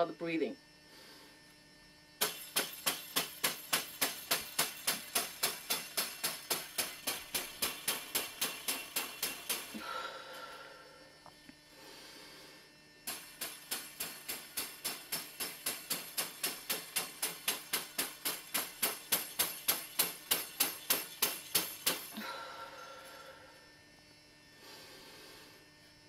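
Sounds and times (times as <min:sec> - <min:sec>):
broom slapping a head: 0:02.2 - 0:09.8.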